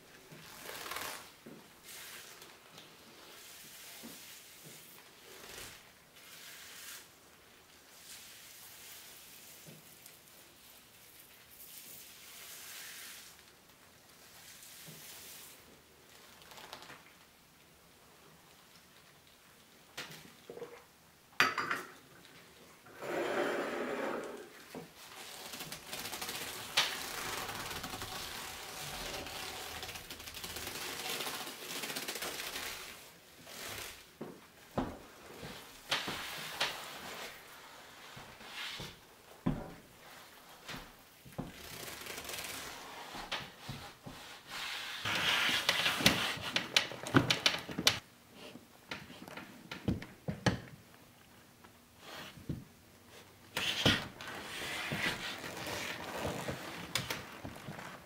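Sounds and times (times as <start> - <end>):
leather rubbing and creaking: 0.4 - 1.3, 54.3 - 58.0.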